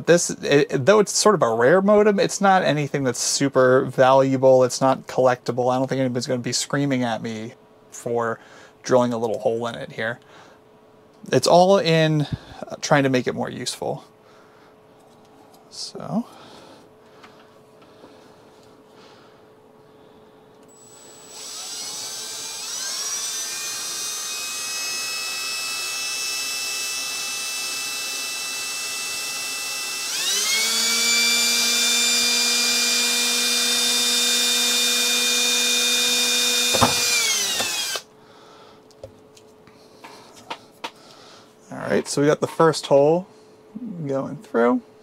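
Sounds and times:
drill click: 0:20.6 - 0:38.0
cordless drill whining: 0:20.7 - 0:38.1.

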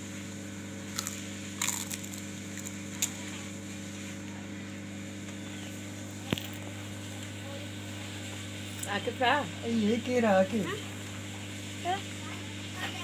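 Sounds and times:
steady low hum: 0:00.0 - 0:13.0
child crunching snack: 0:00.9 - 0:03.4.

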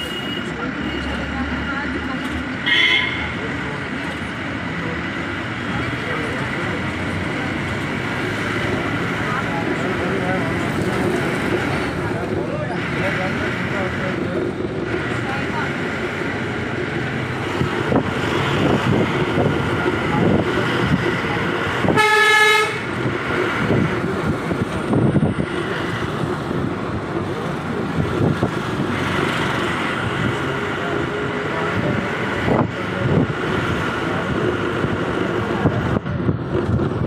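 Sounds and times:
road and engine noise inside car: 0:00.0 - 0:22.2, 0:22.9 - 0:37.0
vehicle horn honk: 0:02.6 - 0:03.4, 0:21.9 - 0:22.9.

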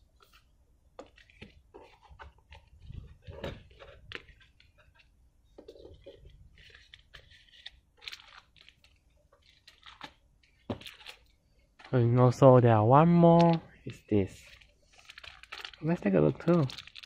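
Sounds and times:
cardboard game pieces shuffled: 0:01.0 - 0:11.2, 0:13.4 - 0:17.0
plastic bag crinkling: 0:05.8 - 0:12.0, 0:14.4 - 0:17.0.

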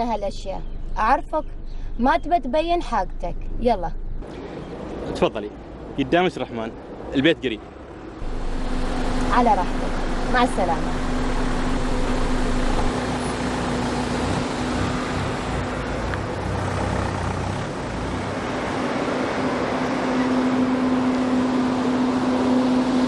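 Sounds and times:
low traffic rumble: 0:00.0 - 0:23.0
cars driving by: 0:03.4 - 0:23.0
steady hum: 0:07.9 - 0:16.4.

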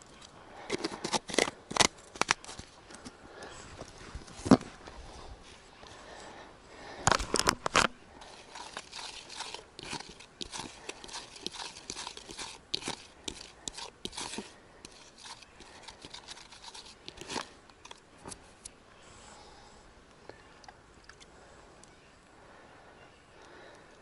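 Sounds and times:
scratching and rustling: 0:07.1 - 0:18.7
fingers rubbing powder in bowl: 0:08.2 - 0:17.5.

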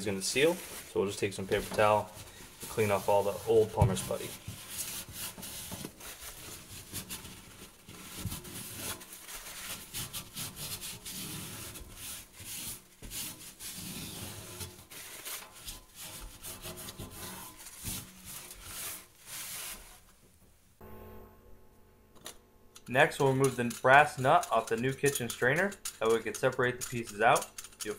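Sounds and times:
paper towel scrubbing sink rim: 0:00.0 - 0:20.1.

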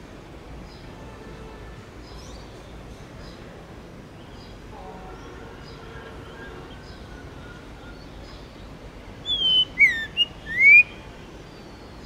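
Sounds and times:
bird whistling song: 0:09.2 - 0:11.0.

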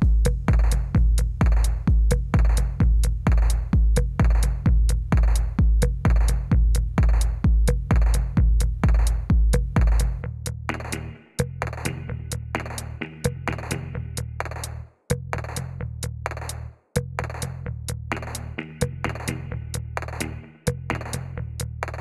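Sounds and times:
electronic dance music: 0:10.7 - 0:13.8, 0:18.2 - 0:21.2.

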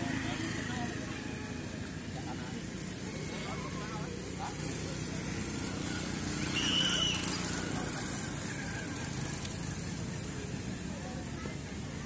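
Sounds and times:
short high-pitched squeal: 0:06.4 - 0:07.6.

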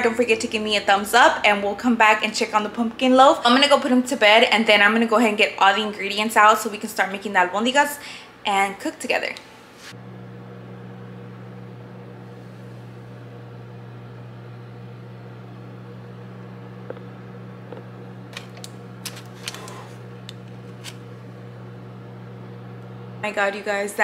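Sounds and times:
kitchen fan humming: 0:00.0 - 0:24.0
light clicks and crinkles: 0:17.7 - 0:21.1.

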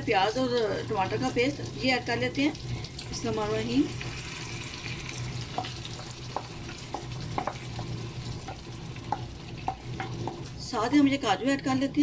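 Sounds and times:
chicken sizzling in a pan: 0:00.0 - 0:12.0
spoon knocking bowl and pan: 0:05.5 - 0:10.5.

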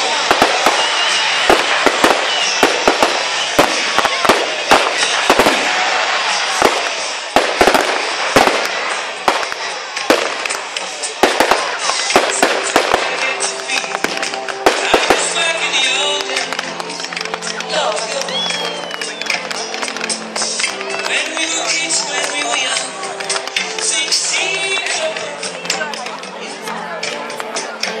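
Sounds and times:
fireworks crackling: 0:00.0 - 0:28.0
firework shells bursting: 0:00.1 - 0:17.6.

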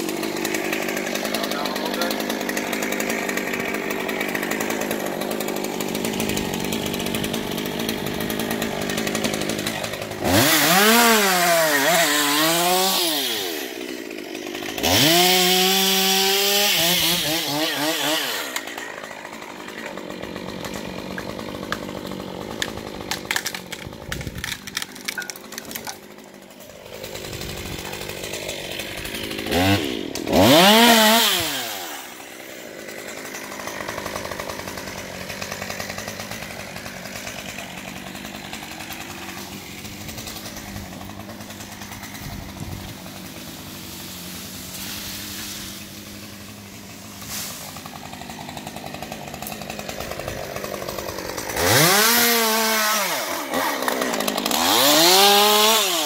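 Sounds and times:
chainsaw idling and revving: 0:00.0 - 0:56.0.

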